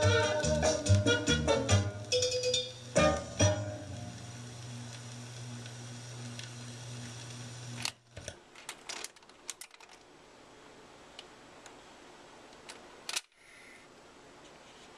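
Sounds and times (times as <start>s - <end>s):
hi-fi hum: 0.0s - 8.5s.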